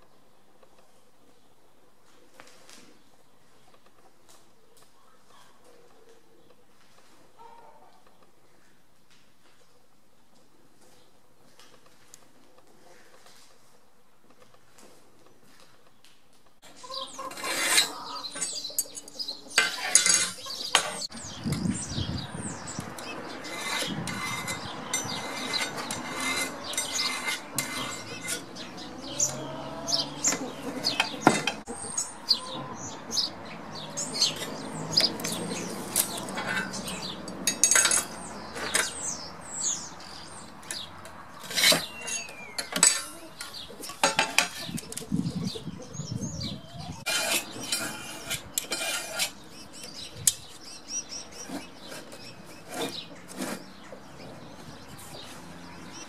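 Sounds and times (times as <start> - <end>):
birds chirping: 16.6 - 56.0
metal tools scraping steel plate: 16.9 - 32.5, 34.0 - 45.1, 46.9 - 50.5, 51.3 - 53.9.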